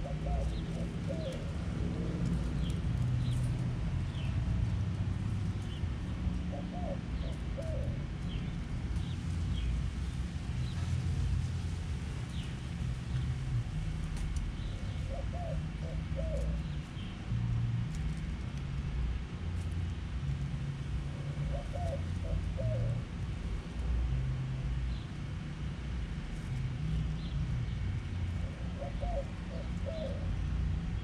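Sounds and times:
dove cooing: 0.0 - 3.4, 6.4 - 8.4, 14.6 - 17.1, 21.0 - 23.1, 28.3 - 30.6
steady low rumble: 0.0 - 31.0.

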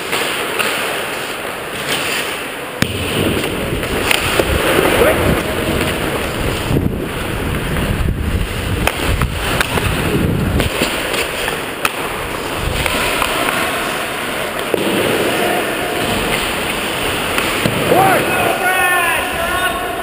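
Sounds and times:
stick hitting puck: 0.0 - 5.2, 8.8 - 10.0, 10.6 - 18.6
skate blades scraping ice: 0.0 - 18.8
wind rushing over camera: 3.2 - 11.1, 12.1 - 13.3.

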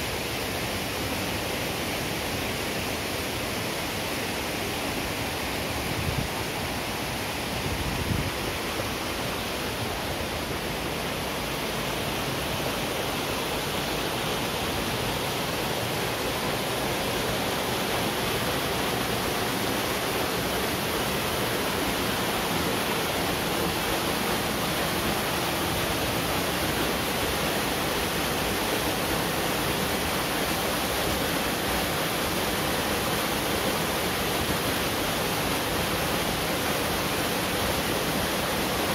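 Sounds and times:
waterfall rushing: 0.0 - 38.9.

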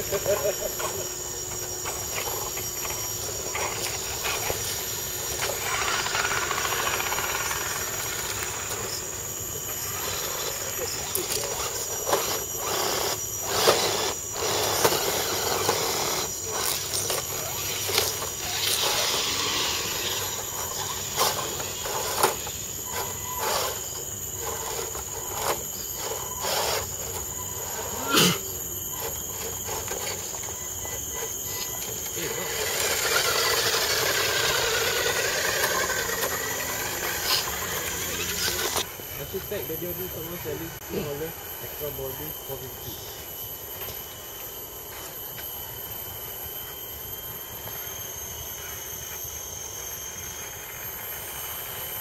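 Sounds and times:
motor and gear whine: 0.0 - 52.0.

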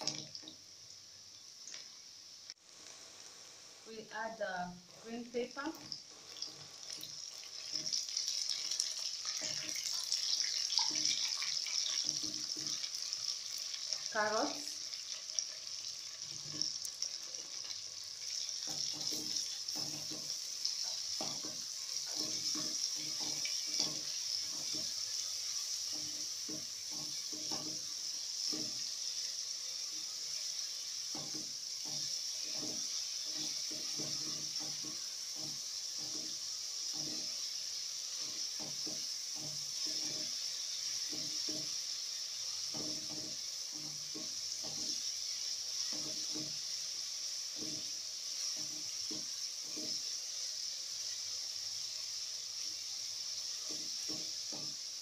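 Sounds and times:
vegetables sizzling in oil: 0.0 - 55.0
spatula stirring and scraping: 4.8 - 29.4, 31.0 - 46.9.

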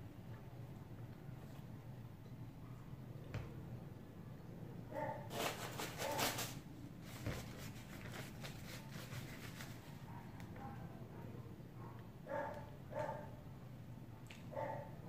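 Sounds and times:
dog barking: 4.9 - 5.3, 10.1 - 13.4, 14.5 - 15.0
paper napkin crinkling: 5.3 - 10.0.

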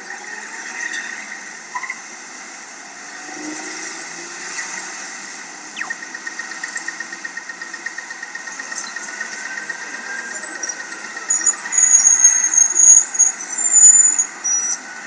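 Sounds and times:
high squealing tones: 5.8 - 6.2, 8.7 - 14.9.

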